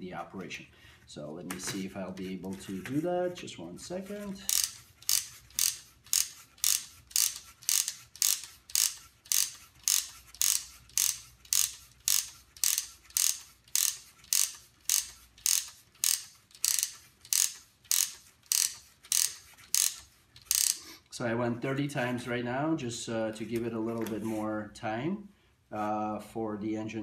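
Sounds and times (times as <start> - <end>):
wooden ratchet clicking: 4.4 - 20.8.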